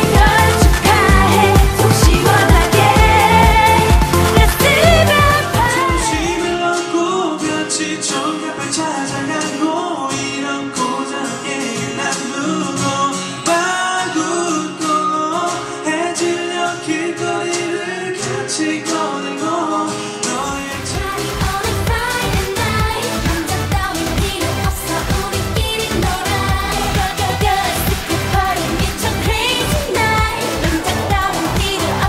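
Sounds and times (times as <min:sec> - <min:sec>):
keyboard: 0:00.0 - 0:32.0
strummed acoustic guitars: 0:00.0 - 0:32.0
man singing: 0:04.6 - 0:21.3.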